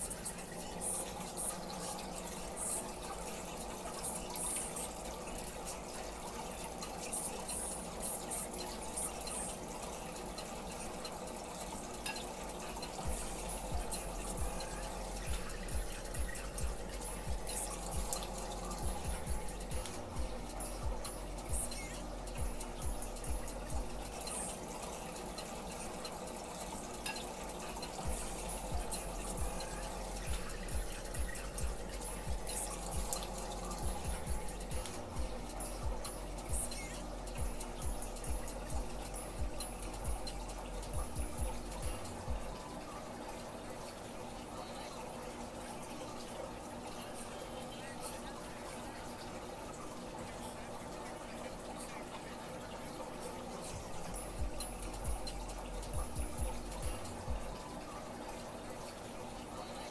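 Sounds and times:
water trickling: 0.0 - 59.9
faint light ticks: 34.8 - 35.1.

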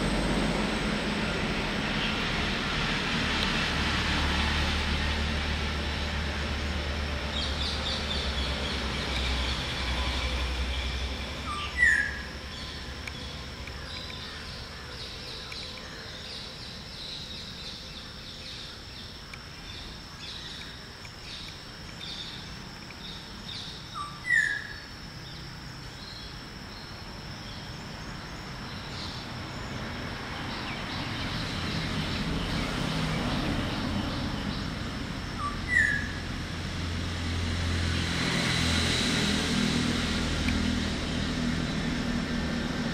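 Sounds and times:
steady low rumble: 0.0 - 15.8
small birds chirping: 7.3 - 36.3
oriole whistled call: 11.4 - 12.3, 23.6 - 24.8, 35.4 - 36.2.

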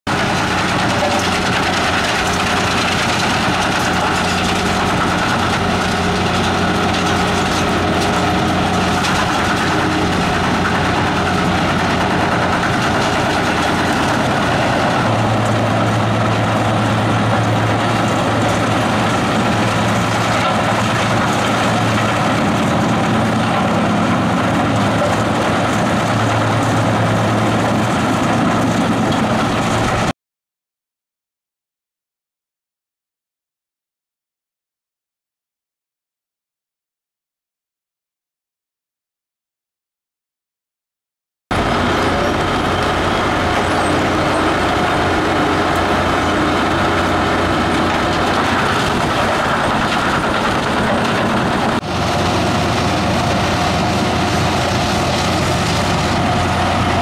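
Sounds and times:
heavy engine drone: 0.1 - 30.1, 41.5 - 57.0
wood chipper chipping wood: 0.1 - 30.1, 41.5 - 57.0.

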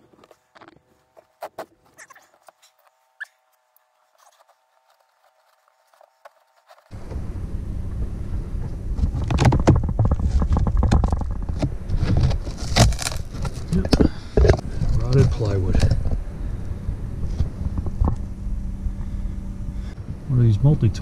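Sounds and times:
carpet rustling: 0.0 - 7.3.

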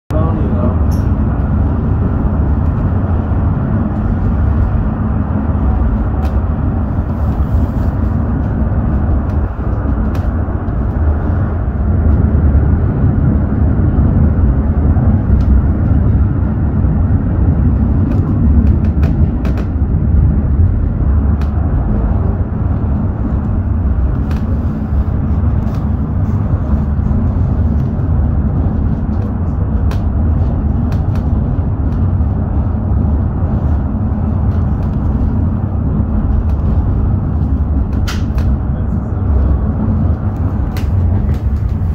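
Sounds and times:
funicular car rumbling on track: 0.1 - 41.9.

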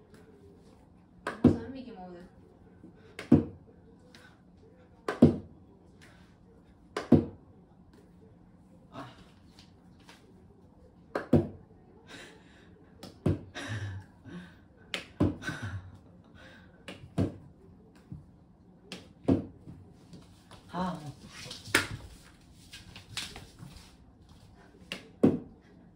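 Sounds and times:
ball knocking on wall and floor: 19.0 - 19.8.

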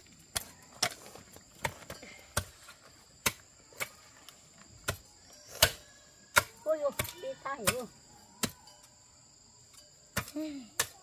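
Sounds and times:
insects droning: 0.0 - 11.0.

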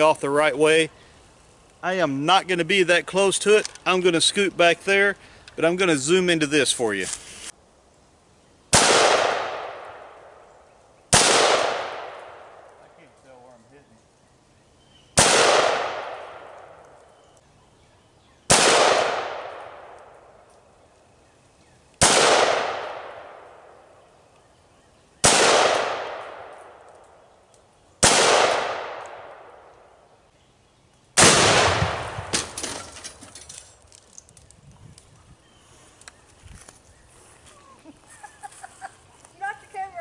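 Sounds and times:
rifle shots echoing: 8.7 - 10.5, 11.1 - 12.8, 15.2 - 16.9, 18.5 - 20.4, 22.0 - 23.9, 25.2 - 27.1, 28.0 - 29.9, 31.2 - 32.6
explosive blast: 31.2 - 32.6
debris crackling and clattering: 32.2 - 34.6.

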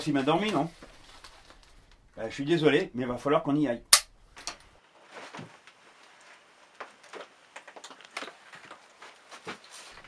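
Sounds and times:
faint rustling: 0.0 - 2.4.

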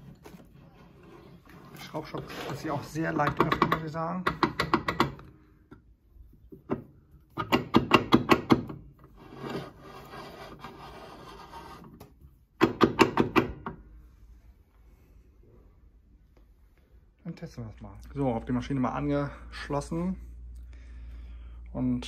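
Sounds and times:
soft steady rubbing: 0.0 - 3.1, 9.1 - 12.0.

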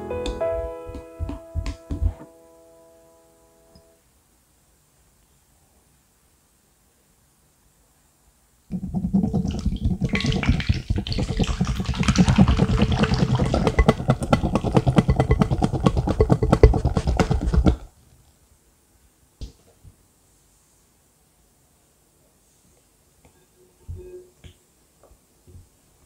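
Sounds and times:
whisk tapping bowl: 8.7 - 17.9
whisk whipping cream: 8.7 - 17.9.

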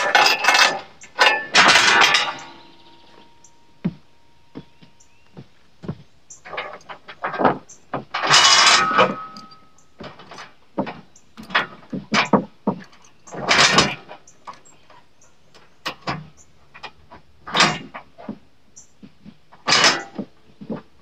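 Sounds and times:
chain rattling and clanking: 0.0 - 3.0, 6.3 - 10.5, 11.4 - 14.8, 19.7 - 20.2.

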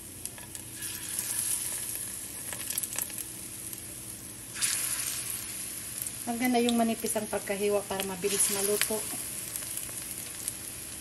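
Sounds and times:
plantain frying in oil: 0.0 - 11.0.

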